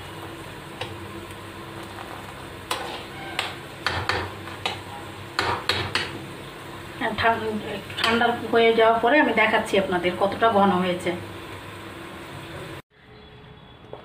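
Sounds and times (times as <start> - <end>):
spoon scraping metal pan: 2.7 - 4.8.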